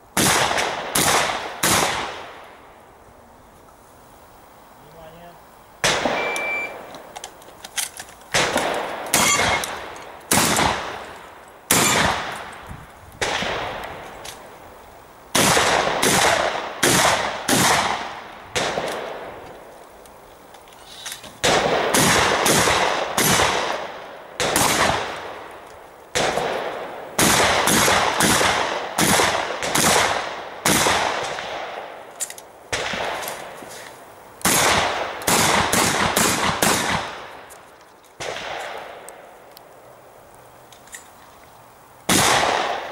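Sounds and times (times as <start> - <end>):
shotgun shots ringing: 0.2 - 2.4, 5.8 - 6.9, 8.3 - 11.0, 11.7 - 12.5, 13.2 - 13.8, 15.3 - 19.3, 21.4 - 25.3, 26.2 - 32.0, 32.7 - 33.6, 34.4 - 37.3, 38.2 - 39.0, 42.1 - 42.9.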